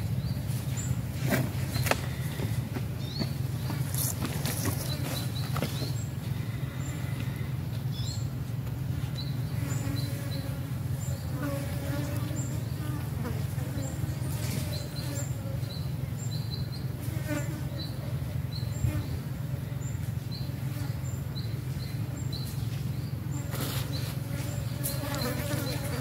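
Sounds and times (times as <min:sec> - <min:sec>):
flies buzzing: 0:00.7 - 0:07.8, 0:09.4 - 0:16.0, 0:16.8 - 0:26.0.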